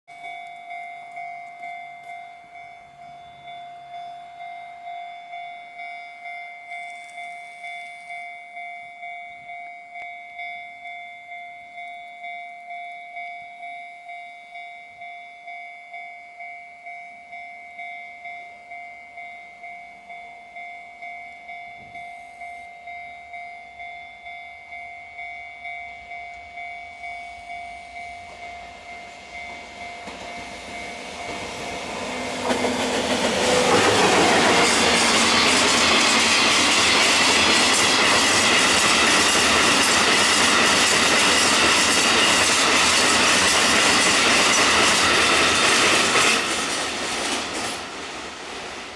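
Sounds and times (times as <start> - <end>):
level crossing bell ringing: 0.1 - 40.6
train running noise: 16.8 - 48.9.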